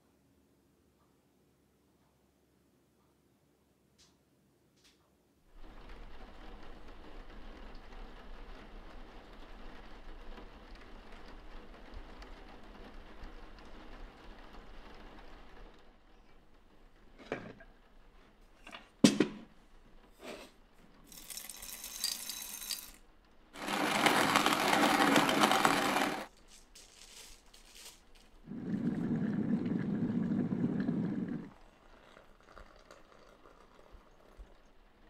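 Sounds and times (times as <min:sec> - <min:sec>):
coffee mill grinding beans: 0:21.1 - 0:23.0, 0:23.6 - 0:32.7.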